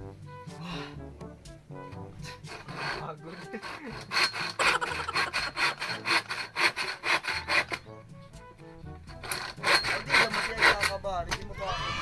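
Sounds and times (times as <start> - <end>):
hand saw cutting wood: 2.2 - 8.0, 9.0 - 11.4.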